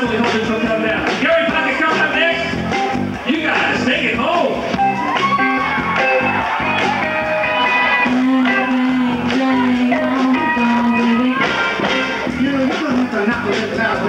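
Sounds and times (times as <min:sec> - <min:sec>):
guitar: 0:00.0 - 0:14.0
live rock band playing: 0:00.0 - 0:14.0
person singing: 0:06.8 - 0:14.0.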